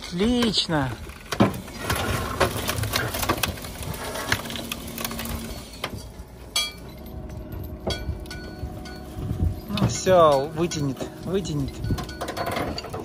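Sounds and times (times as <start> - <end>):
rusted metal clanking and creaking: 0.0 - 13.0
steady low rumble: 6.0 - 13.0.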